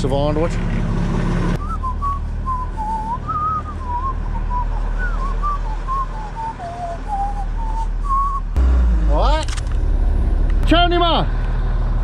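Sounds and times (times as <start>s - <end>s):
person whistling a tune: 1.6s - 8.6s.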